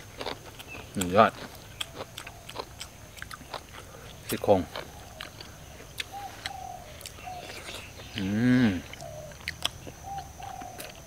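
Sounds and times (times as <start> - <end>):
bird calling: 4.7 - 11.0
person humming: 8.1 - 9.0.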